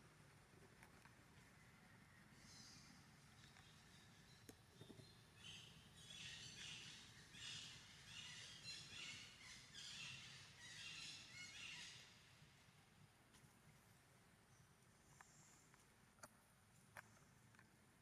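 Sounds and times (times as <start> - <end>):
high chirping calls: 5.4 - 12.1.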